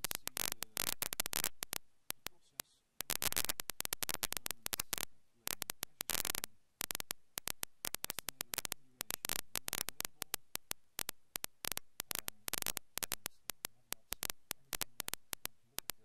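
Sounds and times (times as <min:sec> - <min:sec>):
rapid irregular clicking: 0:00.0 - 0:16.0.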